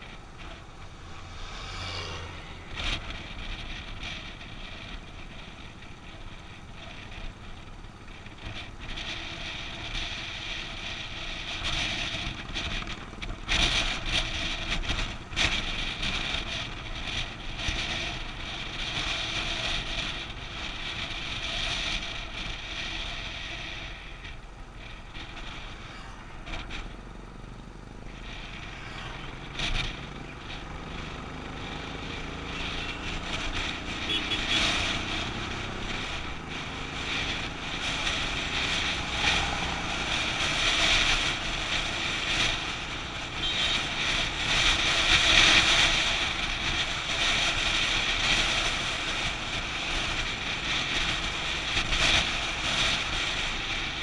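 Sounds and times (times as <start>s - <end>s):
wind on microphone: 0.0s - 27.2s
motorcycle engine running: 0.0s - 54.0s.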